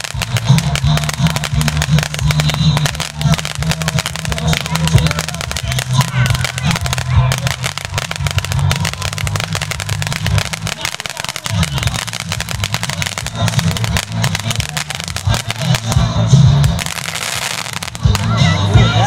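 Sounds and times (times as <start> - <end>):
firework sputtering and crackling: 0.0 - 19.0.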